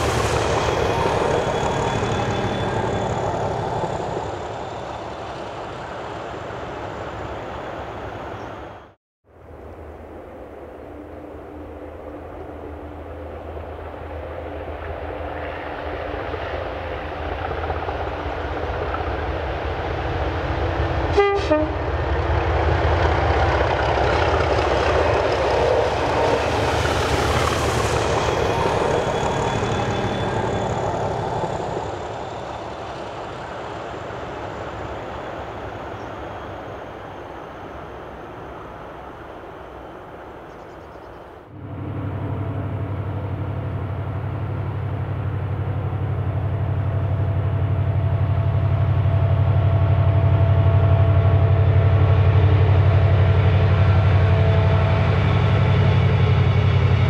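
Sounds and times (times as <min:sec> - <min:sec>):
diesel train passing: 0:00.0 - 0:57.0
train horn toot: 0:21.0 - 0:21.9.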